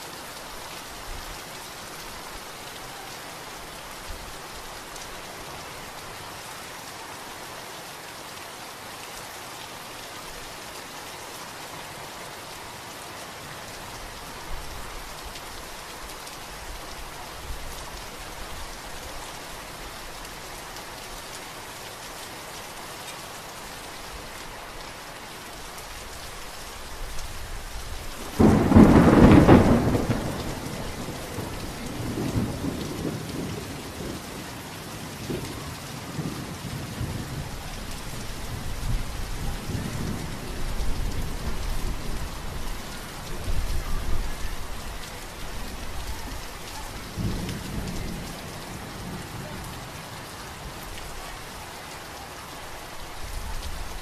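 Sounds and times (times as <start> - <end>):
steady rain: 0.0 - 54.0
thunder clap and rumbling: 28.3 - 34.2.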